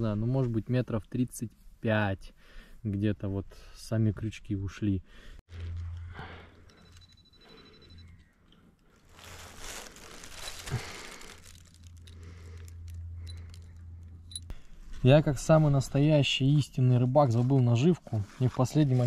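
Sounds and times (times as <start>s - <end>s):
low steady hum: 5.5s - 17.3s
hands rustling fishing line: 8.0s - 15.0s.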